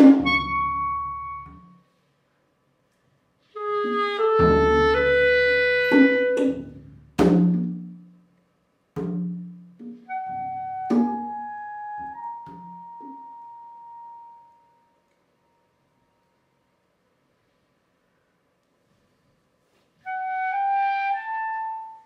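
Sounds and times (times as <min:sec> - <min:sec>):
drum strikes: 0:00.0 - 0:00.8, 0:04.4 - 0:08.0, 0:09.0 - 0:10.1
clarinet playing sustained notes: 0:00.1 - 0:01.8, 0:03.6 - 0:06.6, 0:10.1 - 0:15.9, 0:20.0 - 0:22.0.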